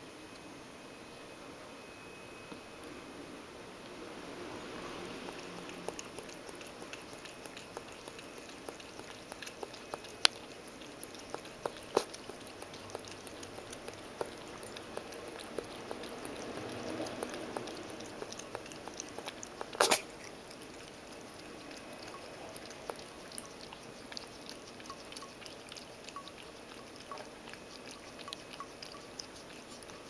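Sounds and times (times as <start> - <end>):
cat lapping water: 3.8 - 30.0.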